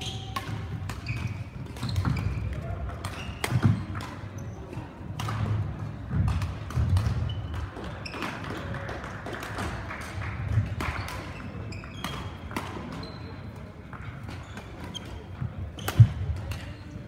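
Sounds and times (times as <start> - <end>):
shoes squeaking on court floor: 0.0 - 5.0, 6.8 - 8.5, 10.8 - 17.0
racket hitting shuttlecock: 0.1 - 4.2, 5.1 - 13.1, 15.8 - 16.8.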